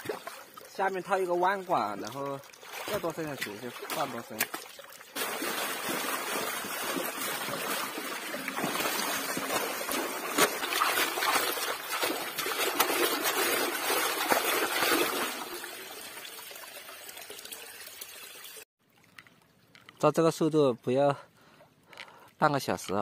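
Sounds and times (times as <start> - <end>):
water pouring through drain: 0.0 - 19.3
hand splashing in water: 2.0 - 15.4.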